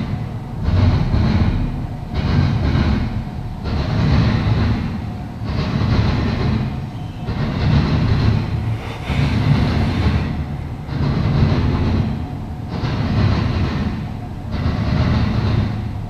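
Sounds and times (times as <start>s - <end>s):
freight train rumbling past: 0.0s - 16.0s
train wheel noise: 0.0s - 16.0s.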